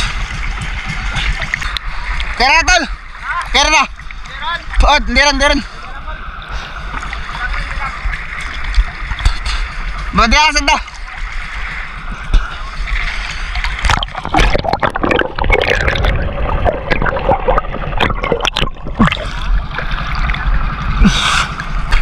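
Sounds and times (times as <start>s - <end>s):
knocks and clatter: 0.0s - 2.0s
steady low rumble: 0.0s - 22.0s
water sloshing and splashing: 0.0s - 22.0s.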